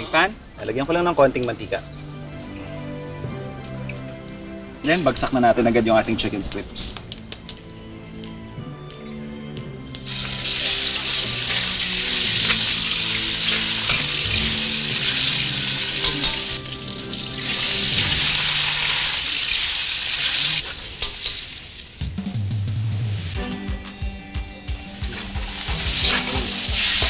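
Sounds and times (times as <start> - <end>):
chicken sizzling in hot oil: 9.9 - 22.0, 25.1 - 27.0.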